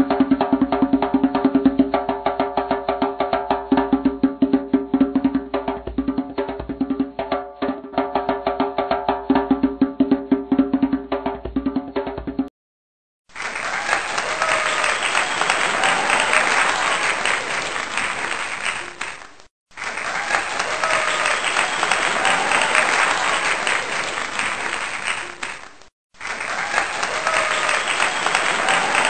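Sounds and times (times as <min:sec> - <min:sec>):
crowd applause: 0:13.3 - 0:29.0
crowd cheering: 0:13.3 - 0:29.0.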